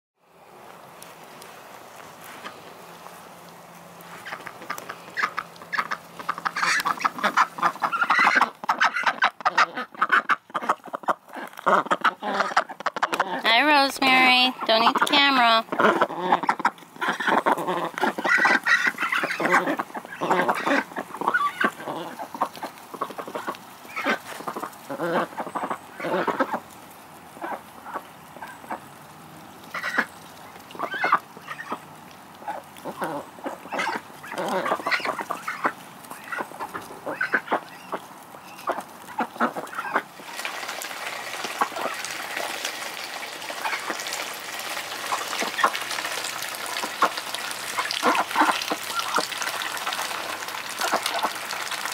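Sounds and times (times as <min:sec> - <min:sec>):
ducks quacking: 0:04.0 - 0:26.7, 0:27.3 - 0:28.9, 0:29.6 - 0:51.9
hose water hissing: 0:28.6 - 0:51.9.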